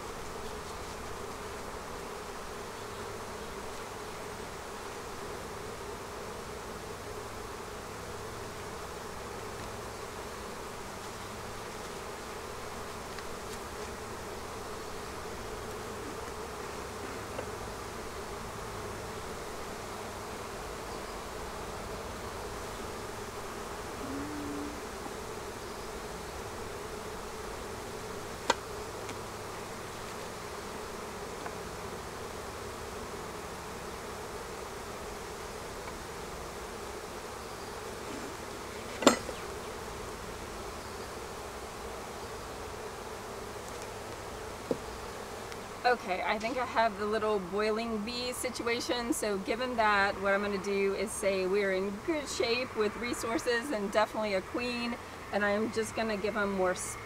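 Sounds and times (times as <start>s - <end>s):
honeybees buzzing: 0.0s - 57.0s.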